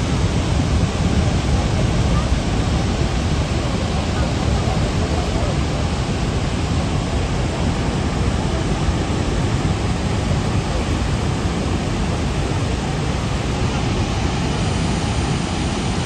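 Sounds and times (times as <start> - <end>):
waterfall roaring: 0.0 - 16.0.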